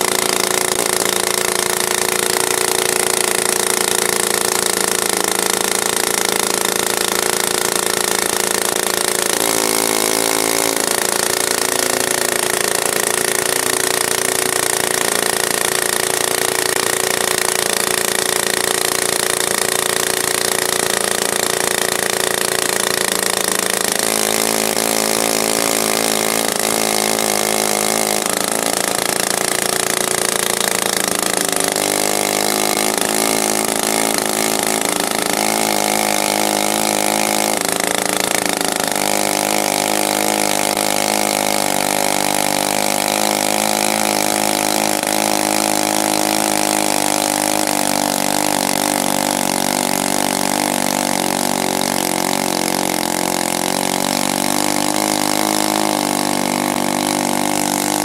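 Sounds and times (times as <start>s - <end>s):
chainsaws cutting through log: 0.0s - 58.0s.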